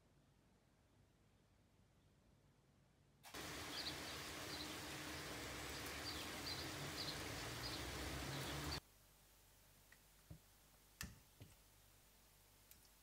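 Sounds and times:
outdoor background hiss: 0.0 - 13.0
sparrows chirping: 3.3 - 8.8.

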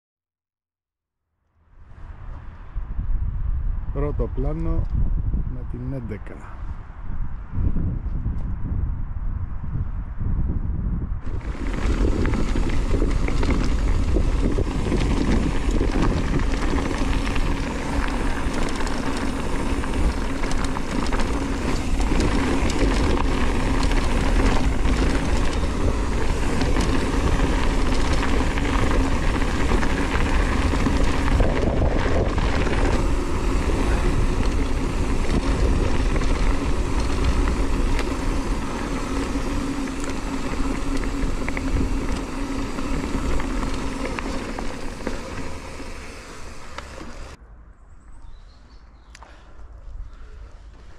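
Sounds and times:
wind on microphone: 1.9 - 47.4
bike rattling over bumps: 11.2 - 47.4
tyres crunching on gravel: 11.2 - 47.4.

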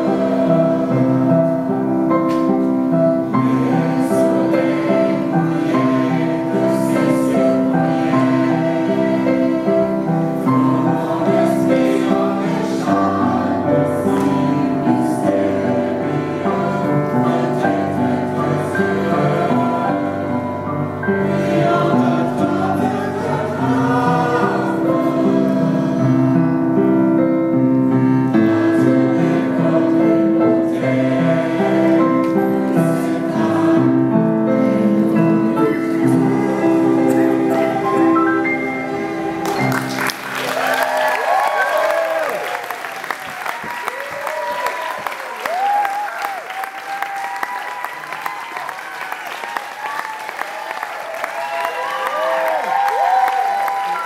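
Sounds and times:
mixed choir singing: 0.0 - 42.5
grand piano accompaniment: 0.0 - 54.0
audience applauding: 39.4 - 54.0
people whooping and calling out: 40.4 - 54.0.

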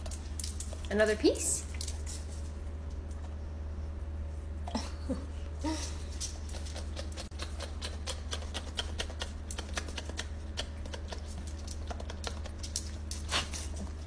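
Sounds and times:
steady low hum: 0.0 - 14.0
dog chewing and smacking: 6.1 - 14.0.

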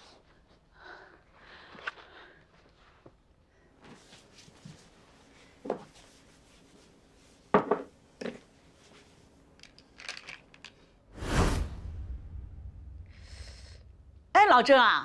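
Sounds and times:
light clicks and rattles: 9.6 - 10.9.

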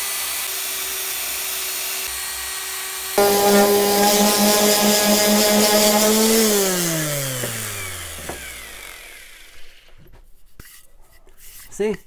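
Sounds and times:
orbital sander winding down: 3.2 - 9.7.

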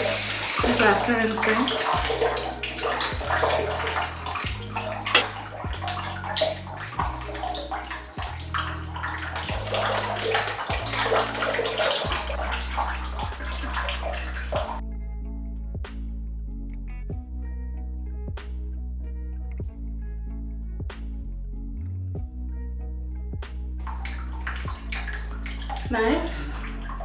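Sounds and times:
shower water splashing: 0.0 - 14.8, 23.8 - 27.0
background music bass line: 0.0 - 27.0.

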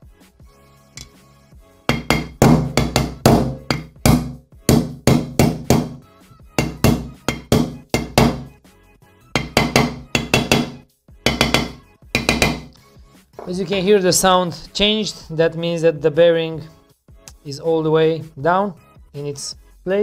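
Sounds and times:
hammer striking metal drift: 1.9 - 6.0, 6.6 - 8.5.

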